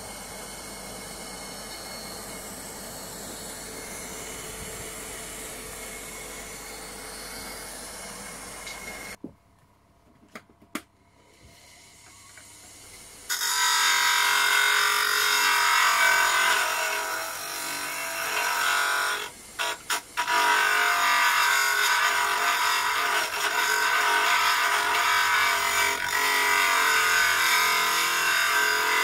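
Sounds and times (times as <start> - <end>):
electric motor spinning up: 0.0 - 9.2.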